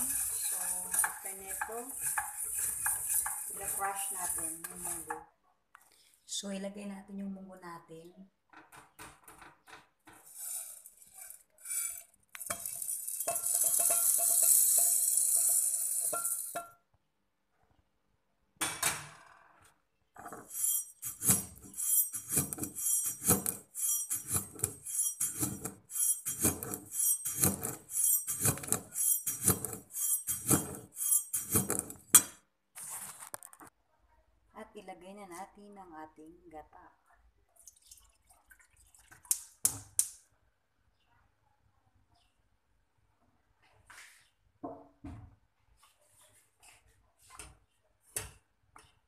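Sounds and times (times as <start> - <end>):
beans rattling in brass mortar: 0.0 - 5.2, 10.3 - 16.6, 20.2 - 32.2.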